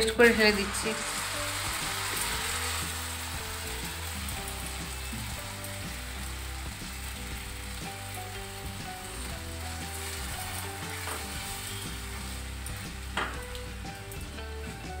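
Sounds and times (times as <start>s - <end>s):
paste sizzling in hot oil: 0.0s - 15.0s.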